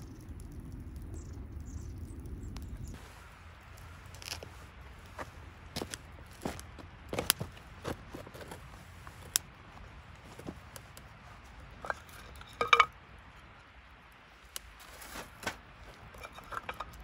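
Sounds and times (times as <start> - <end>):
cookware knocks and clinks: 11.9 - 12.9.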